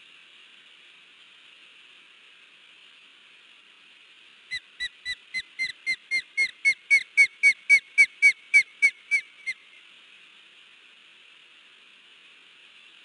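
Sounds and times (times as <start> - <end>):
osprey alarm calls: 4.5 - 9.7.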